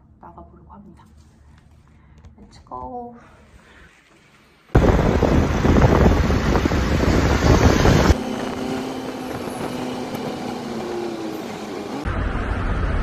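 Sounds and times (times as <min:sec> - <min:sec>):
rushing wind and road noise: 0:04.8 - 0:13.0.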